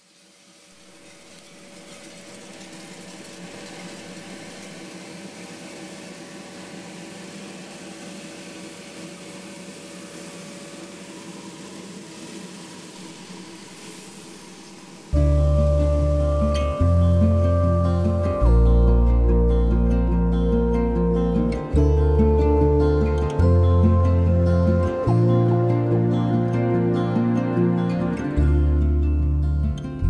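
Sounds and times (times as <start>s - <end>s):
roasting machine hum with hiss: 0.0s - 28.5s
loud guitar music: 15.2s - 30.0s.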